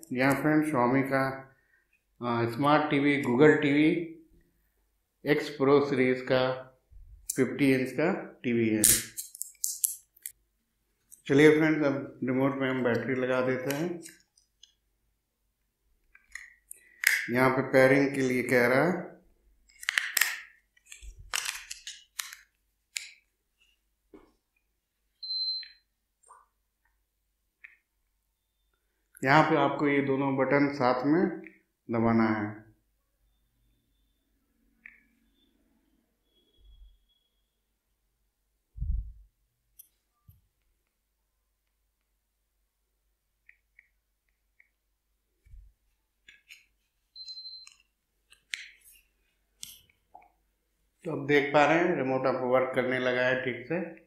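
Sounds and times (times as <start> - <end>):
plastic remote handled: 19.7 - 23.2
high-pitched beep: 25.2 - 25.8, 47.2 - 47.8
short high beep: 47.2 - 47.7.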